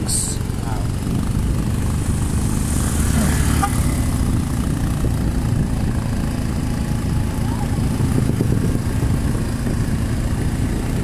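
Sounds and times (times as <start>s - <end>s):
motorcycle engine running: 0.0s - 11.0s
wind and road noise: 0.0s - 11.0s.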